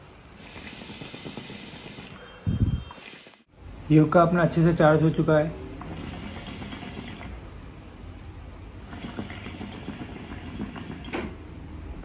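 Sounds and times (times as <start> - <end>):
hookah water bubbling: 0.3 - 2.2, 2.9 - 3.4, 8.8 - 11.1.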